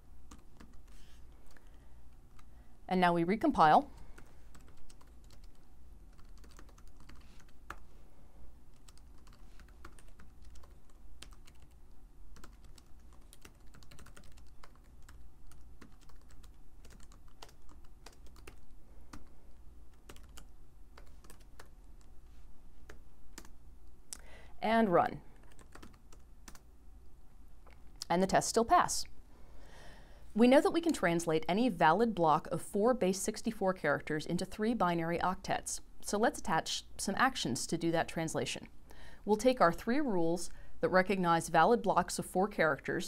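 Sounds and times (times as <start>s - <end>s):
computer keyboard typing: 0.3s - 2.5s, 4.1s - 7.8s, 8.7s - 22.1s, 22.8s - 23.6s, 25.4s - 26.7s.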